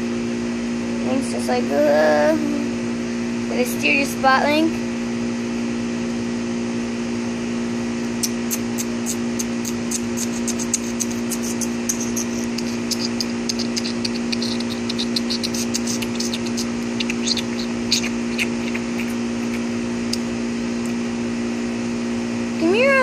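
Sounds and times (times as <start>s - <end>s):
mechanical hum: 0.0s - 23.0s
quick high chirps: 8.2s - 19.7s.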